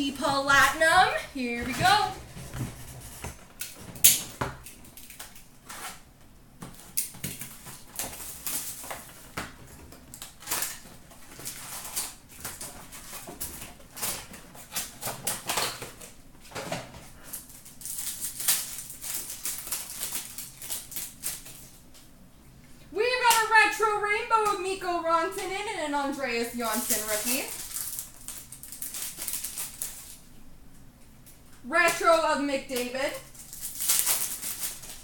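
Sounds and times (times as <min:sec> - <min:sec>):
foil and plastic crinkling: 0:00.0 - 0:03.8, 0:04.4 - 0:21.9, 0:23.0 - 0:30.4, 0:31.7 - 0:35.0
cardboard tearing: 0:33.3 - 0:35.0
sharp crackle: 0:33.4 - 0:35.0.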